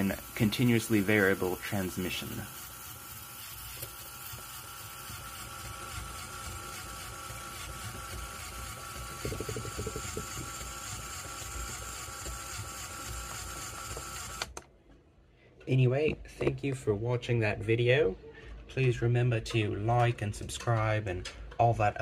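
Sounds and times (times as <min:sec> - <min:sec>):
chain and gears pulsing: 0:00.0 - 0:14.5
electric motor whirring: 0:00.0 - 0:14.6.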